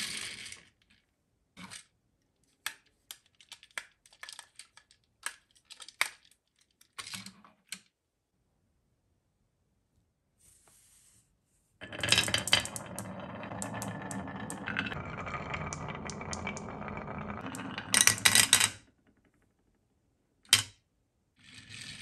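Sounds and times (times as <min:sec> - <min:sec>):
marbles rolling on wooden track: 0:00.0 - 0:00.9, 0:11.8 - 0:19.8, 0:21.4 - 0:22.0
marbles clacking into plastic bin: 0:11.8 - 0:19.6.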